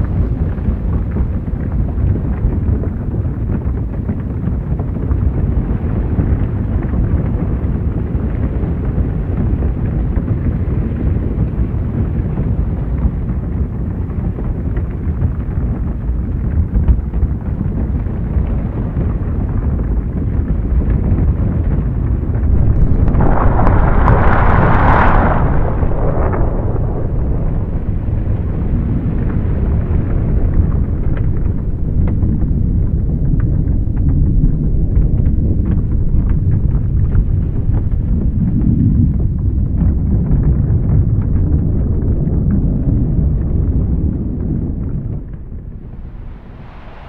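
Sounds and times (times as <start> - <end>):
deep rumbling noise: 21.7 - 47.0
hissing surge: 22.3 - 29.2.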